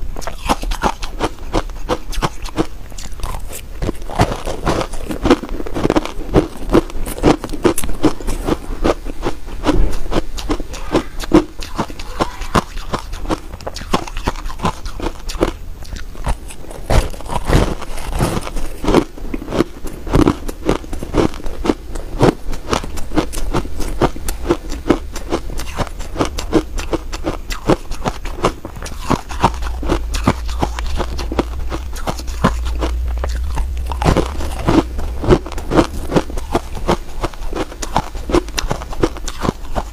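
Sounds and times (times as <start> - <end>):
person crunching ice: 0.2 - 39.9.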